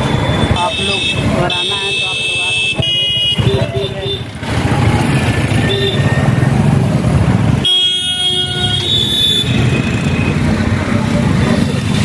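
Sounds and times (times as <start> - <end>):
car horn: 0.0 - 4.3, 5.6 - 6.3, 7.6 - 10.4
vehicle engines running: 0.0 - 12.0.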